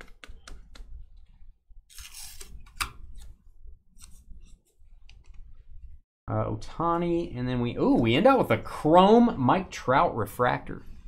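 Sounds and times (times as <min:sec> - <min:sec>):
cards sliding papery swish: 0:01.9 - 0:03.3.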